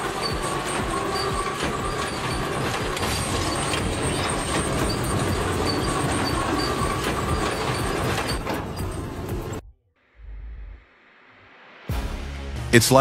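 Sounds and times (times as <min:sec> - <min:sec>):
faint high squeals: 0:00.0 - 0:09.6
sawmill machinery clattering: 0:00.0 - 0:09.6.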